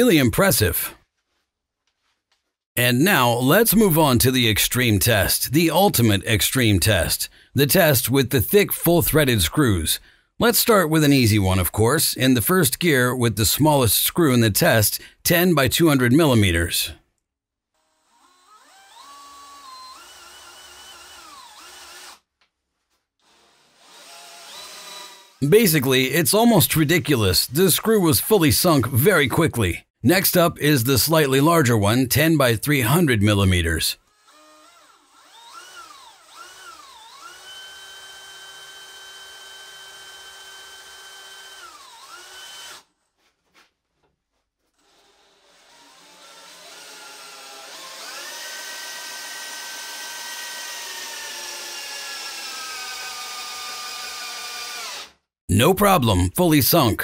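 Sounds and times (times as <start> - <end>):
cordless drill motor whine: 17.8 - 22.2, 23.2 - 25.4, 34.0 - 42.9, 44.8 - 55.1.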